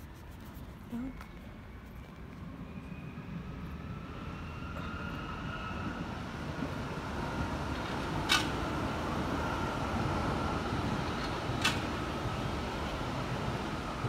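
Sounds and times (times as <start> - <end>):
train rumbling over bridge: 0.9 - 14.0.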